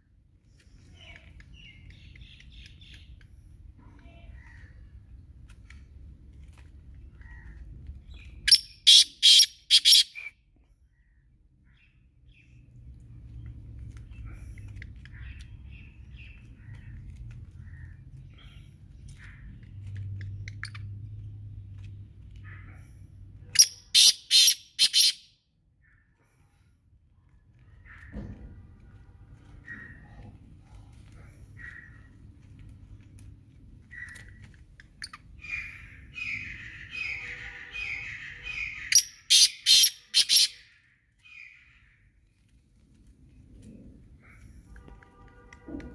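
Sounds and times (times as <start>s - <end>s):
bird harsh grating call: 8.5s - 10.3s, 23.6s - 25.2s, 35.4s - 40.8s.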